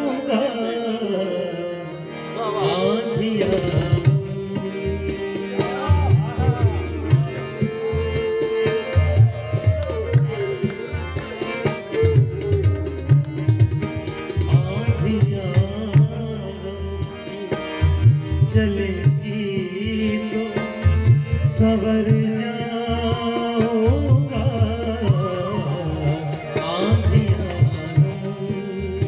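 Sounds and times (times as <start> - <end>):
harmonium chords: 0.0 - 29.0
tabla playing a rhythm: 0.0 - 29.0
bamboo flute melody: 7.8 - 13.3.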